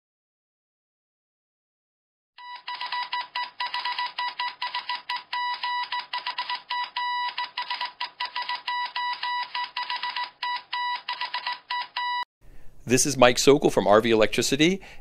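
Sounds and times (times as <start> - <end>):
morse code beeping: 2.4 - 12.3.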